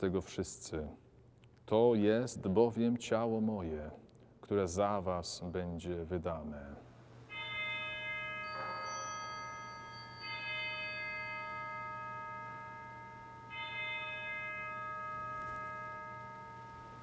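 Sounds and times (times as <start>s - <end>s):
altar bell ringing: 7.3s - 17.0s.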